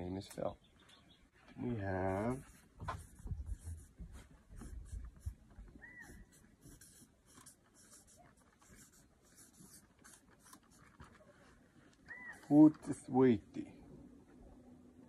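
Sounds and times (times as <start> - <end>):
marker scratching on paper: 2.1 - 11.2.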